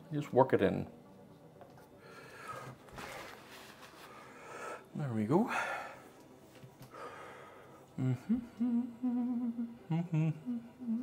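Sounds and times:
man humming: 7.9 - 11.0.

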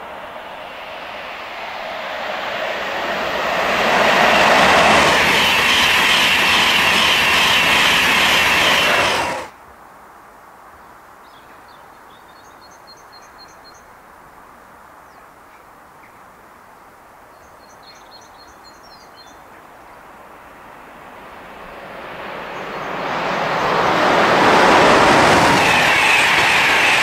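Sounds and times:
train passing at speed: 0.0 - 9.6, 19.7 - 27.0.

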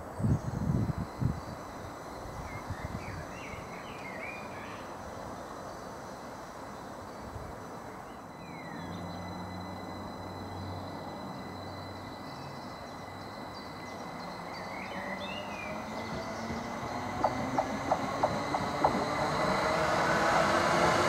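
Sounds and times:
electric train hum and whine: 0.0 - 21.0
bird chirps: 8.2 - 19.2.

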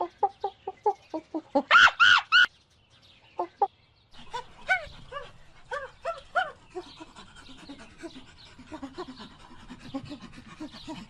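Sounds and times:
monkeys calling: 3.4 - 11.0.

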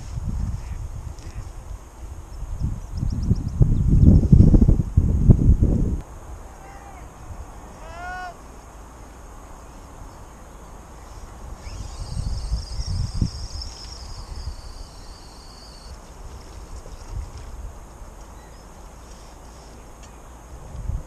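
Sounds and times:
wind buffeting microphone: 0.0 - 7.9, 9.9 - 18.7, 19.9 - 21.0
high wavering whirr: 11.0 - 16.0.

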